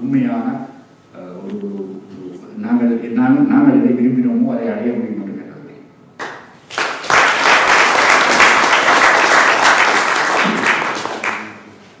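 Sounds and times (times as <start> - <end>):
audience applauding: 6.2 - 11.7.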